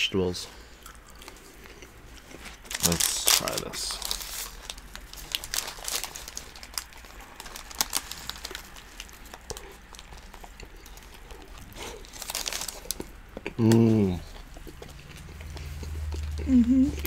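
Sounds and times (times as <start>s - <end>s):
chewing and mouth clicks: 0.8s - 2.6s, 8.2s - 17.0s
paper wrapper crinkling: 2.4s - 13.1s.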